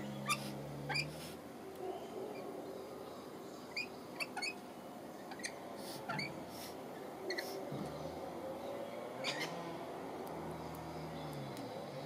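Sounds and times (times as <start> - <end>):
lorikeets squeaky chirps: 0.0 - 1.2, 3.7 - 4.6, 5.2 - 6.4, 9.2 - 9.6.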